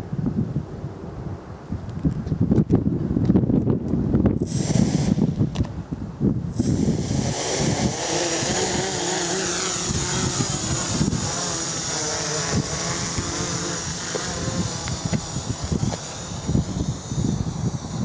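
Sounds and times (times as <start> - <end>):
drone propellers whirring: 4.3 - 5.8, 6.4 - 18.0.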